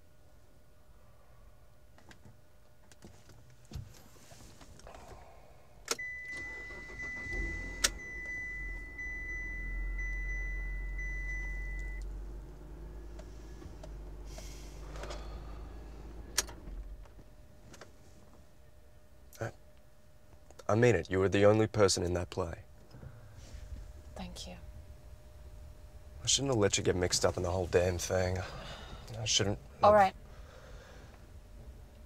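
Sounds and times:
car engine rumbling: 3.4s - 19.3s, 21.3s - 32.0s
steady high beep: 6.0s - 12.1s.

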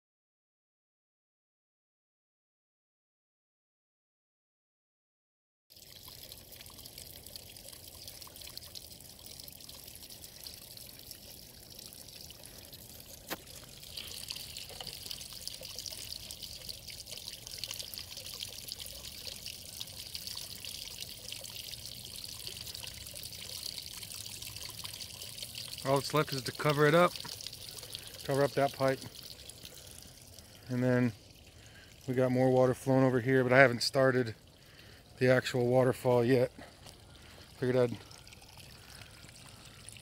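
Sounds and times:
water splashing into basin: 5.7s - 32.2s, 35.9s - 40.0s
water trickling down rock: 5.7s - 40.0s.

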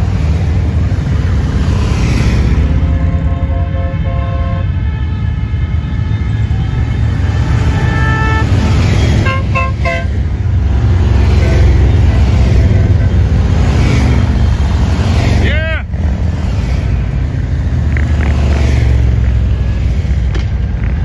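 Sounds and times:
horns tooting: 2.6s - 14.6s
motorcycles rumbling past: 6.4s - 21.0s.

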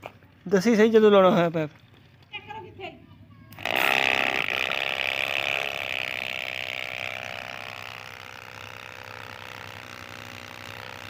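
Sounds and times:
electric water pump whirring: 3.5s - 11.0s.

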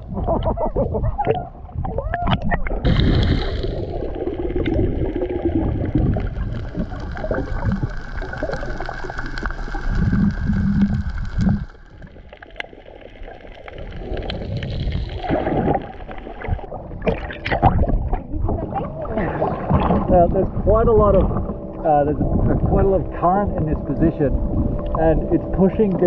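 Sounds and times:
muffled underwater water rushing: 0.0s - 26.0s
small clicks and crackles: 0.2s - 18.9s.

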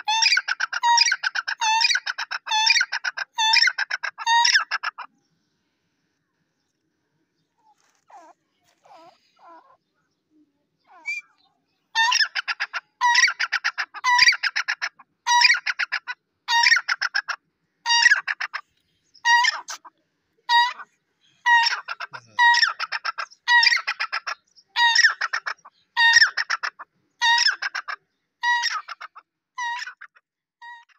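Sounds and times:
francolin calling: 10.9s - 14.7s.

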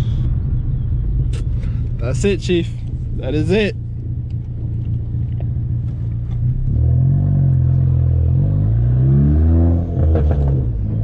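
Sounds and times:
car engine revving: 3.1s - 11.0s.

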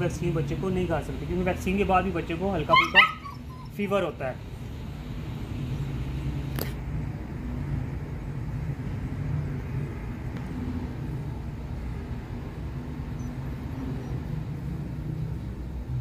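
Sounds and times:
engine running: 4.3s - 16.0s.

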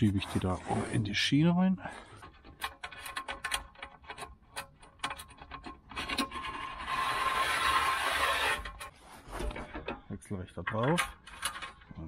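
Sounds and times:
screw scraping along metal rail: 1.9s - 10.0s
metallic clicks and ticks: 2.2s - 6.4s.

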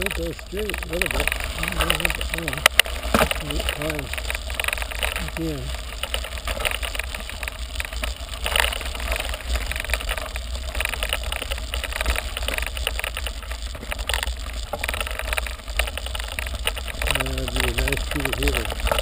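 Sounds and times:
tyres crunching on gravel: 0.0s - 19.0s.

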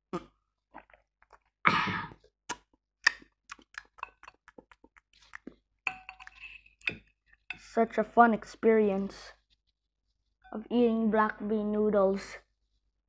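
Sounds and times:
chopsticks clicking on bowl: 3.1s - 4.9s.

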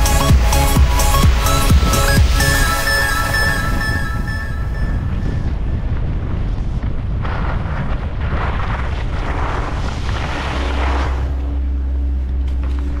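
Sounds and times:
steady low hum: 0.0s - 13.0s
wind buffeting microphone: 1.3s - 13.0s
skis scraping over snow: 5.2s - 13.0s.

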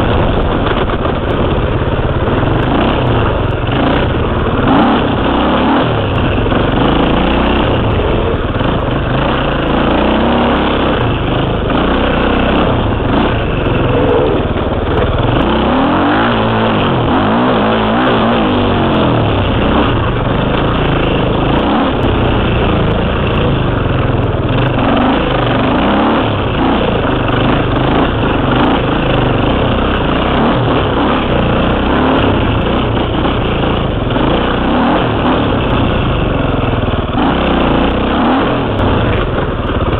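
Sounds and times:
dirt bike engine running hard: 0.0s - 39.9s.

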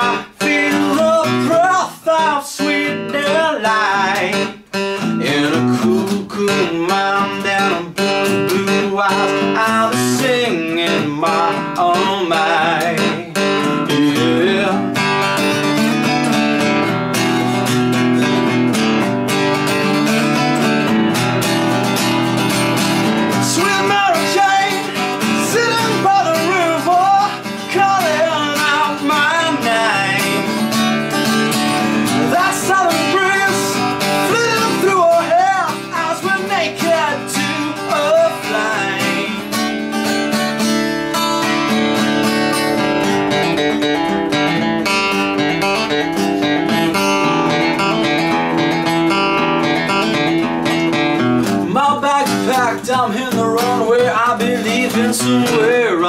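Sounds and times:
man singing: 0.0s - 15.4s, 23.0s - 40.2s, 51.6s - 56.0s
acoustic guitar strumming: 0.0s - 56.0s.

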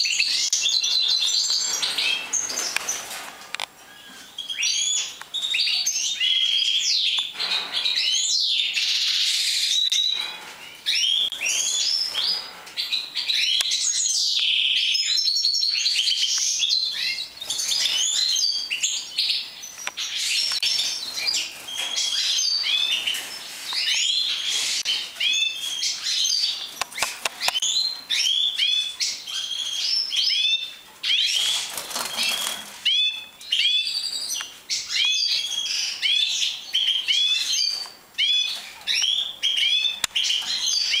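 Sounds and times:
goldfinches chirping and twittering: 0.0s - 3.0s, 3.9s - 41.0s
rustling bursts: 31.4s - 32.8s.

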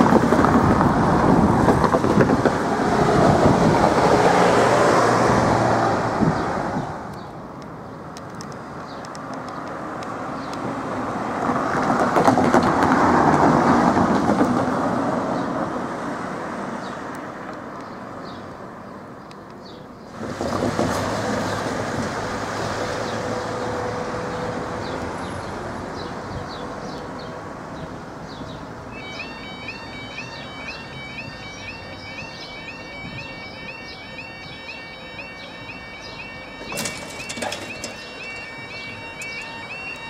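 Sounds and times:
vehicle passing: 0.0s - 7.1s.

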